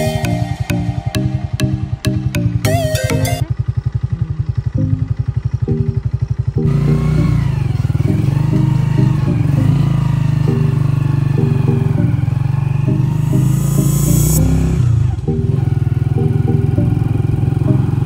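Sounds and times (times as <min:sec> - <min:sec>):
fast pulsing beat with melody: 0:00.0 - 0:03.5, 0:04.8 - 0:06.0.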